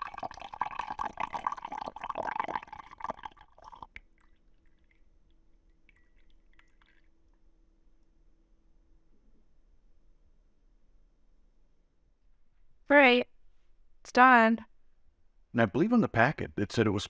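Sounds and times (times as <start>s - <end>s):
tea pouring into mug: 0.0s - 7.5s
faint drips: 0.0s - 8.2s.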